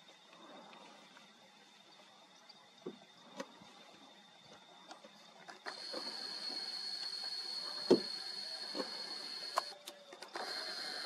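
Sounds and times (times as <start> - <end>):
high-pitched buzz with hiss: 5.7 - 9.8, 10.4 - 11.0
scattered clicks: 5.7 - 11.0.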